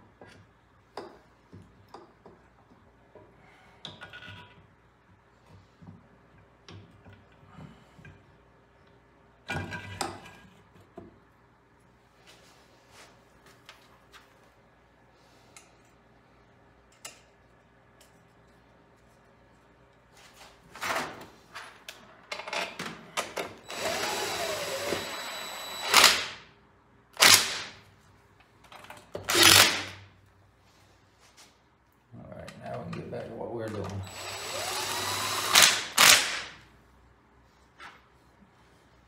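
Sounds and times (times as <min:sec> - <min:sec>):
handheld power drill bursts: 0:23.6 - 0:26.4, 0:27.2 - 0:27.7, 0:29.3 - 0:30.0, 0:34.0 - 0:36.6.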